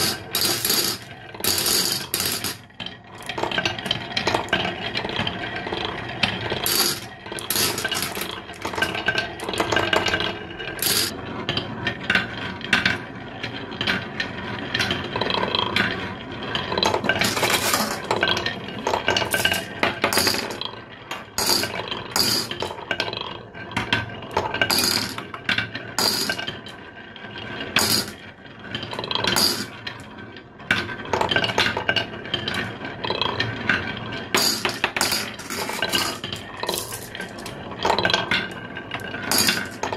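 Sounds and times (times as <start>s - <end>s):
marbles clicking and clinking: 0.0s - 4.8s, 6.5s - 11.2s, 16.8s - 23.2s, 24.4s - 25.3s, 26.0s - 26.7s, 27.8s - 28.2s, 29.2s - 29.8s, 34.3s - 39.9s
marbles rolling on wooden track: 0.0s - 39.9s.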